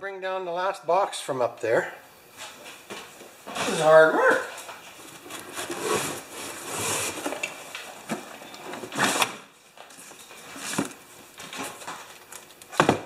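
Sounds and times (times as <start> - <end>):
cardboard box scraping on wood: 5.2 - 7.5.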